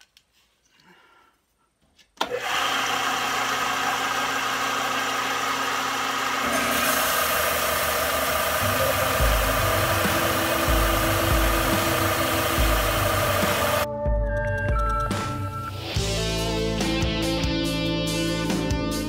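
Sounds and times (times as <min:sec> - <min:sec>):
sander motor running: 0:02.2 - 0:13.9
blade hissing on abrasive: 0:06.4 - 0:13.9.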